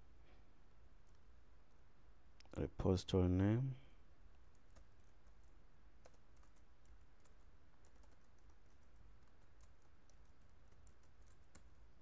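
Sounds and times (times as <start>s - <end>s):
background hiss: 0.0s - 12.0s
keyboard typing: 4.5s - 12.0s.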